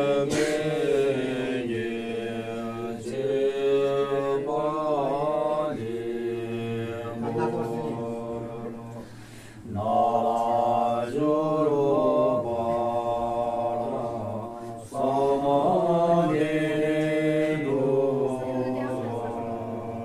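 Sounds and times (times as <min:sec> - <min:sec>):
voices chanting held tones: 0:00.0 - 0:20.0.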